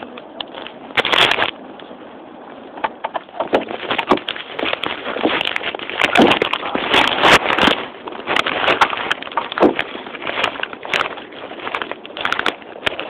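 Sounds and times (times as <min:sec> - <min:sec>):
sharp clicks and knocks: 0:02.8 - 0:13.0.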